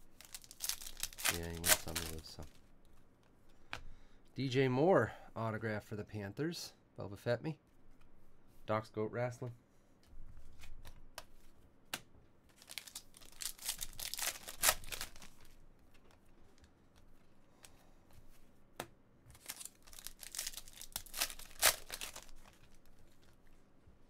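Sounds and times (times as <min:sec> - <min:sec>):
foil wrapper crinkling and tearing: 0:00.1 - 0:02.4, 0:12.6 - 0:15.5, 0:19.3 - 0:23.0.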